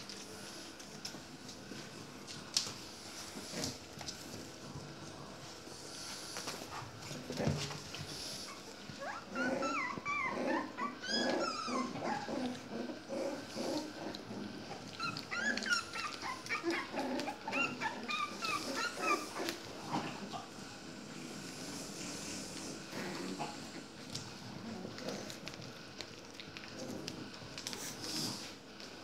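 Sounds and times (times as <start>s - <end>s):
puppies whining and squeaking: 8.3s - 12.7s, 14.8s - 19.7s.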